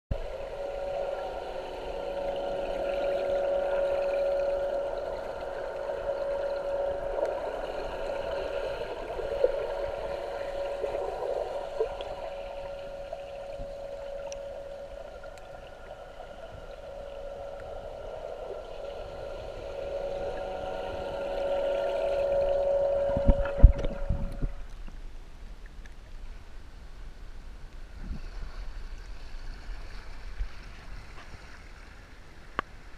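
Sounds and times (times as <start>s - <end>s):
water gurgling: 0.1s - 24.8s
electric jet drive whining underwater: 0.1s - 24.9s.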